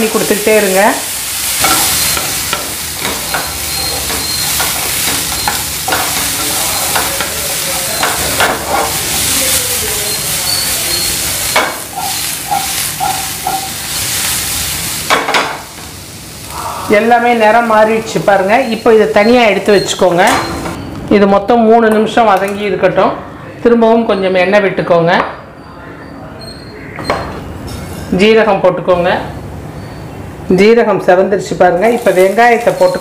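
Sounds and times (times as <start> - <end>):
vegetables frying in oil: 0.0 - 20.7, 31.7 - 33.0.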